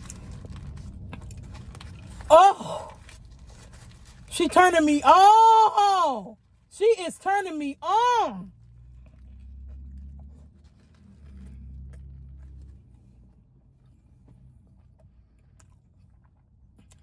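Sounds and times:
foil wrapper crinkling: 3.0s - 4.3s.

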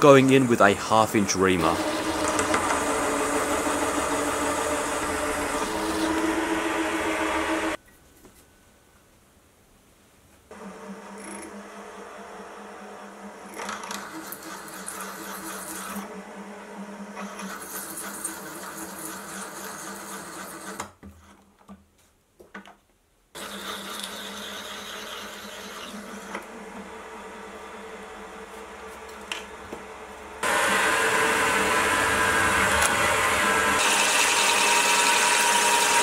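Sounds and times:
metal cutting noise: 0.0s - 7.8s, 30.4s - 36.0s
milling machine motor hum: 0.0s - 7.8s, 10.5s - 20.8s, 23.4s - 36.0s.

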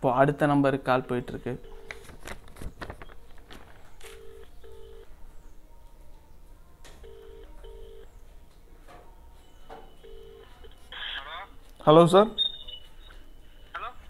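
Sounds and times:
phone ringback double ring: 9.9s - 10.6s.

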